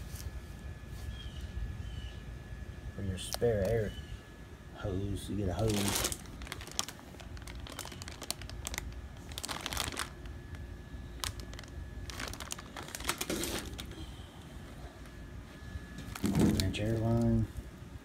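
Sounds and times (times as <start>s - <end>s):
plastic bag crinkling: 5.4s - 14.1s, 16.0s - 17.5s.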